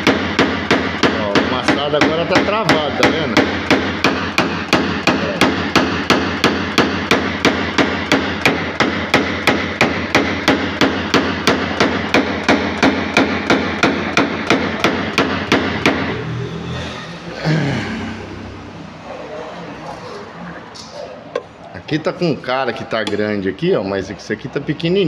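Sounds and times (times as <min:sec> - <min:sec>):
hammer tapping on metal panel: 0:00.0 - 0:16.1.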